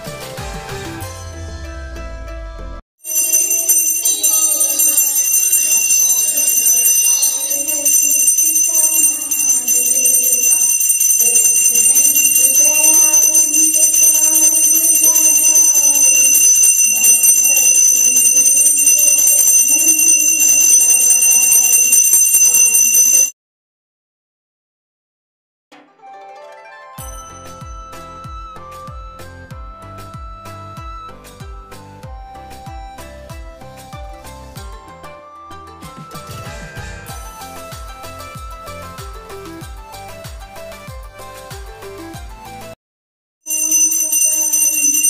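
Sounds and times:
bell ringing: 3.0 - 23.4, 27.0 - 28.2, 43.5 - 45.0.

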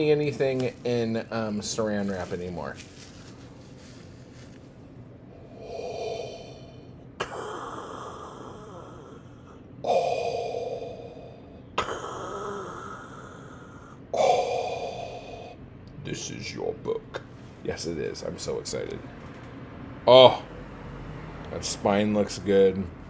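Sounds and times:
man breathing heavily: 5.3 - 15.7.

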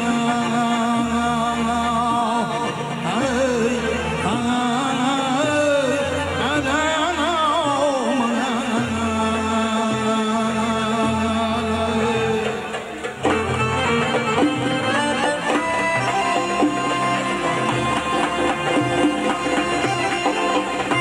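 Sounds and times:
folk singer and band: 0.0 - 21.0.

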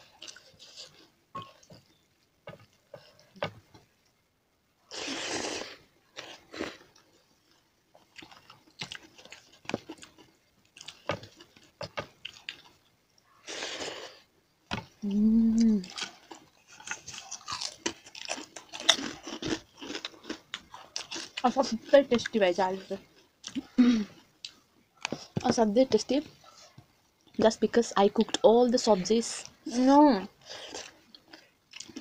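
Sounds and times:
chewing and crunching food: 0.0 - 4.2, 4.8 - 27.5, 30.4 - 32.0
person humming: 15.0 - 15.9.

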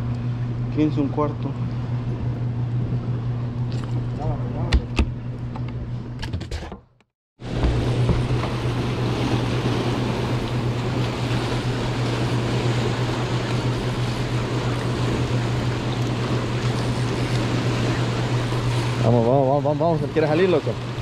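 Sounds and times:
steady low hum: 0.0 - 6.6, 7.4 - 21.0
white water churning and rushing: 7.4 - 21.0.

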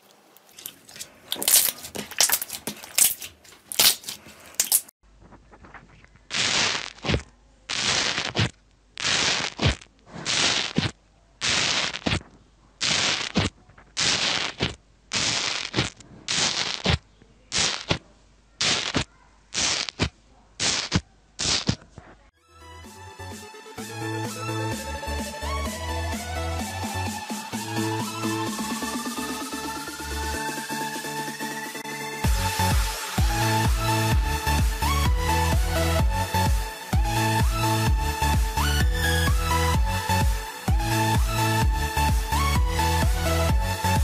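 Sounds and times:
slime squishing in hands: 0.3 - 4.9.

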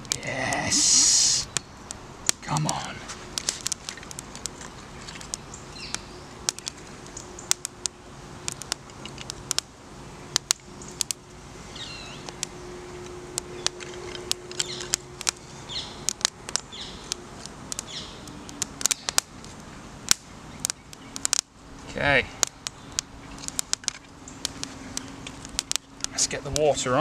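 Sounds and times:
bird chirping: 0.0 - 2.9, 4.5 - 7.7, 10.0 - 21.3, 22.5 - 26.2
sticks snapping and popping: 0.0 - 9.7, 10.3 - 11.2, 12.2 - 21.5, 22.4 - 26.7
fire crackling: 0.0 - 27.0.

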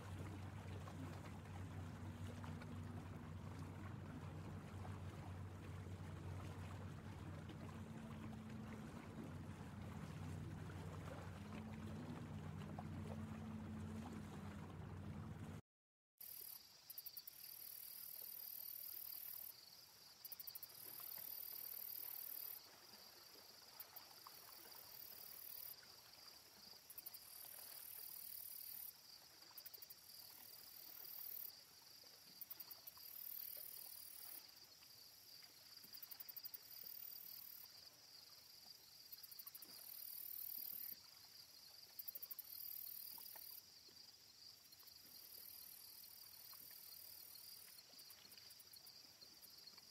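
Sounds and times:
crickets trilling: 16.2 - 49.9.

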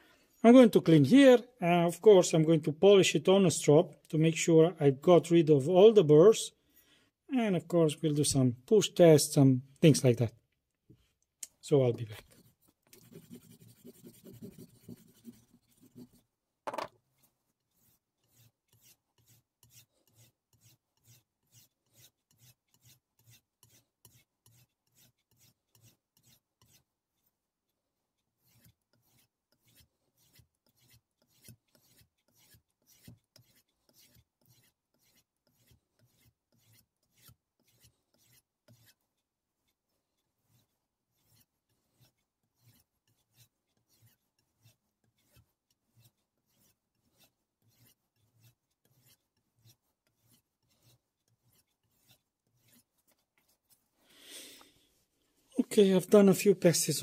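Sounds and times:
knife stroking across strop: 11.8 - 27.3, 28.4 - 54.8.

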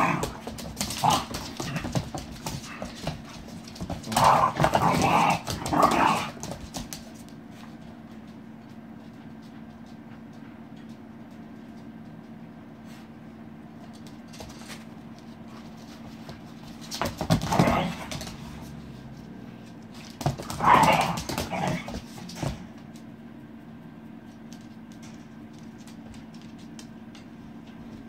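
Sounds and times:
claws clicking on wooden floor: 0.0 - 7.4
steady low hum: 0.0 - 28.0.

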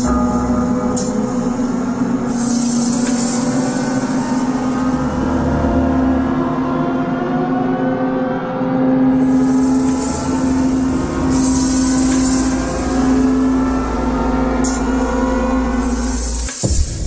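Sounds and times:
high tones climbing in pitch: 0.0 - 16.5
low steady drone: 0.0 - 17.0
swells of hiss: 9.4 - 13.3.

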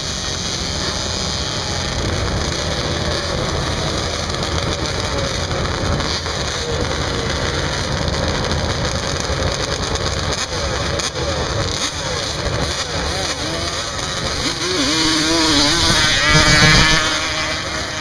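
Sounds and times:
quad engines running: 0.0 - 18.0
rough crackling noise: 0.0 - 18.0.

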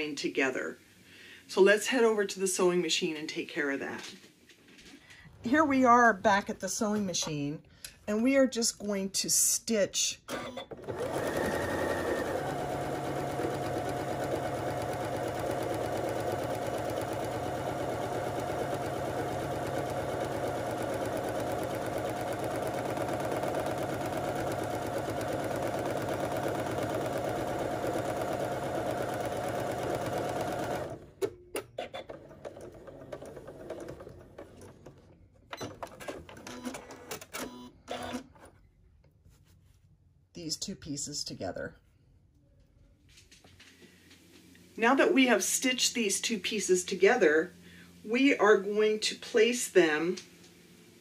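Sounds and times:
electric sewing machine stitching: 10.4 - 31.3, 31.9 - 34.8.

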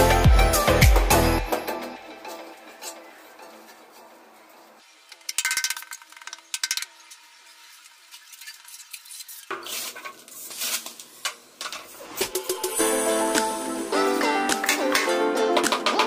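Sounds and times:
metal straightedge scraping tiles: 5.2 - 12.6.

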